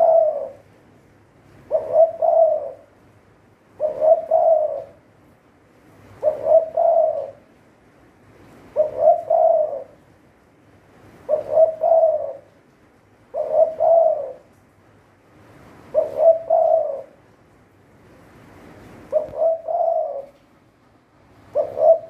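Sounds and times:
dove cooing: 0:00.0 - 0:00.7, 0:01.6 - 0:03.0, 0:03.7 - 0:05.1, 0:06.1 - 0:07.6, 0:08.6 - 0:10.1, 0:11.1 - 0:12.6, 0:13.3 - 0:14.6, 0:15.8 - 0:17.3, 0:19.0 - 0:20.4, 0:21.4 - 0:22.0.

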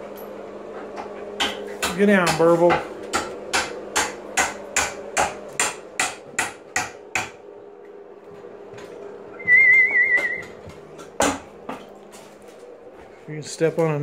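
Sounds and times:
high wavering whistle-like tone: 0:09.4 - 0:10.5
sharp knocks: 0:10.2 - 0:11.8.

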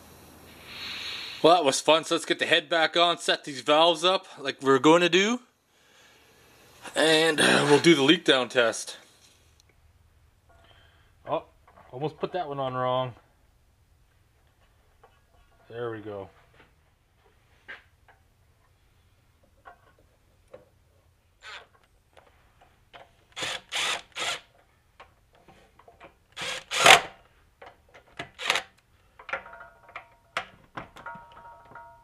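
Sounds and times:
cordless power driver spinning: 0:23.3 - 0:24.5, 0:26.4 - 0:27.2, 0:28.2 - 0:28.8.

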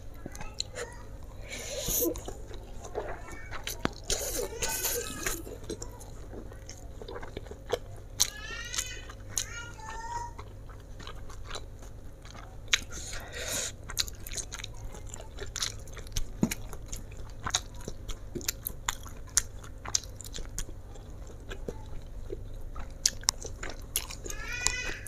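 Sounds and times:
breathy noise: 0:00.7 - 0:03.5
wet chewing and mouth smacks: 0:01.6 - 0:09.5, 0:10.3 - 0:24.8.

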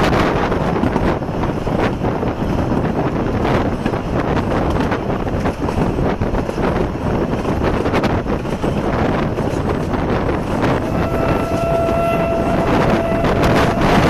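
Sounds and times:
train carriage rumbling on track: 0:00.0 - 0:14.0
steam locomotive whistle: 0:10.6 - 0:14.0.

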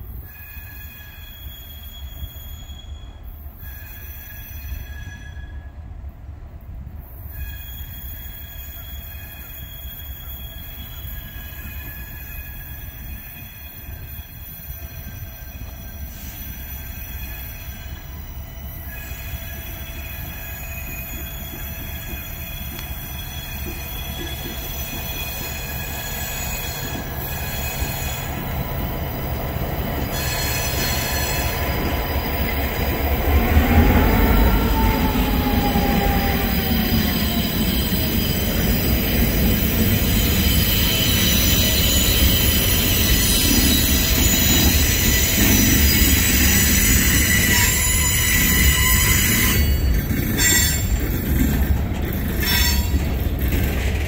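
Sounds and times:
train wheels squealing: 0:00.0 - 0:06.1, 0:06.9 - 0:54.0
train rumble: 0:00.0 - 0:54.0.

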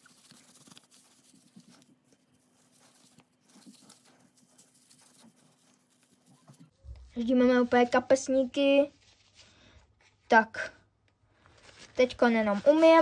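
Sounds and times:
tissue rubbing phone case: 0:00.0 - 0:06.8.

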